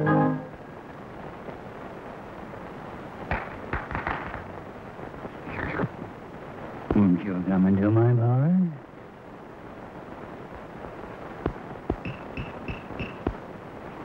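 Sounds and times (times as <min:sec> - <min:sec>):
soundtrack hiss: 0:00.0 - 0:14.0
sharp crackles and clicks: 0:00.8 - 0:08.1, 0:08.8 - 0:14.0.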